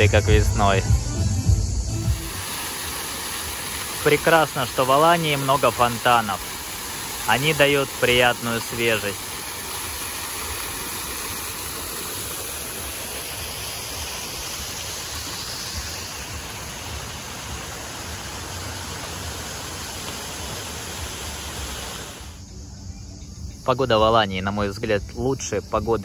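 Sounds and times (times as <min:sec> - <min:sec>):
fountain water splashing: 0:02.1 - 0:22.4.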